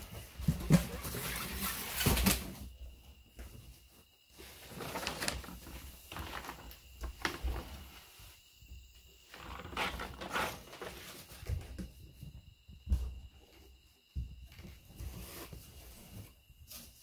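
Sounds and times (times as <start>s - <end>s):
plastic bag rustling: 4.4s - 7.9s.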